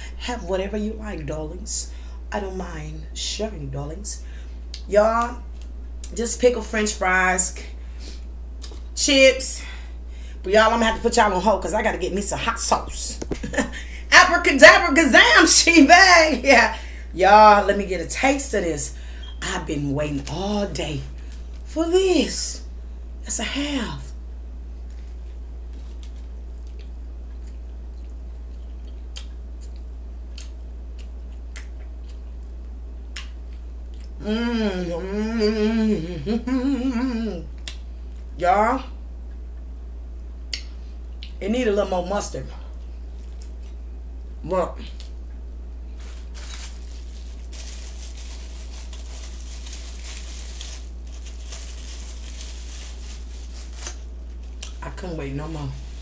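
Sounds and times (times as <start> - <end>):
low hum: 16.7 - 56.0
person chewing food: 25.7 - 34.2
plastic wrapper crinkling: 45.9 - 56.0.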